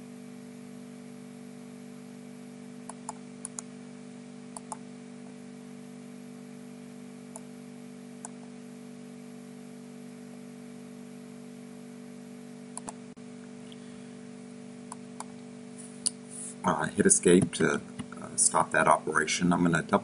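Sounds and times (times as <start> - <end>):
low electrical hum: 0.0 - 20.0
computer mouse clicking: 2.9 - 3.7, 4.6 - 4.8, 12.8 - 13.0.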